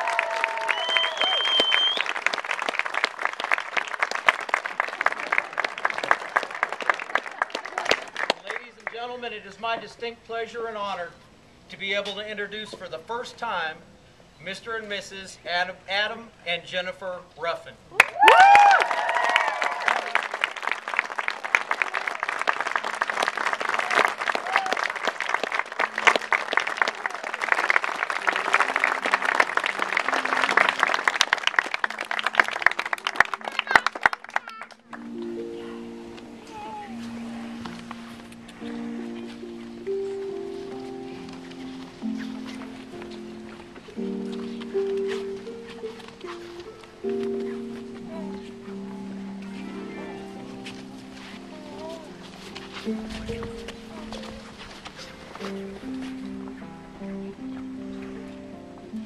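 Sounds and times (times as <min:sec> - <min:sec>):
person whooping: 0:00.0 - 0:02.0, 0:17.9 - 0:20.2, 0:23.8 - 0:24.9
crowd clapping: 0:00.0 - 0:09.1, 0:18.0 - 0:35.3.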